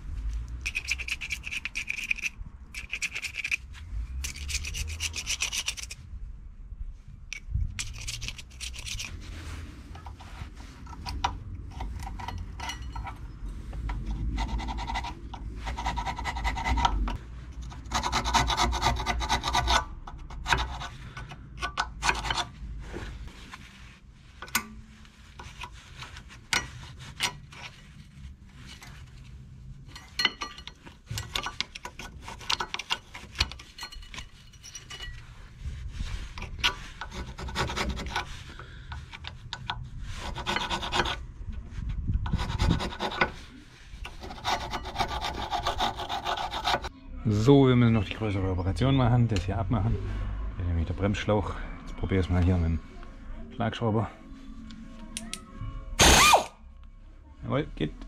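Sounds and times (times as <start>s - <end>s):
screwdriver scraping metal: 0.6s - 6.0s, 7.3s - 9.2s, 10.9s - 22.6s, 24.4s - 28.0s, 29.9s - 35.4s, 36.3s - 41.2s, 42.2s - 46.9s.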